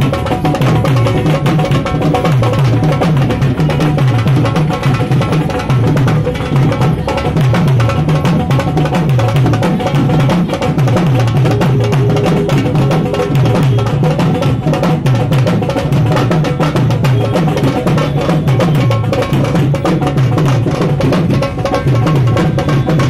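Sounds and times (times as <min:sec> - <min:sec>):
folk dance music with drums: 0:00.0 - 0:23.0.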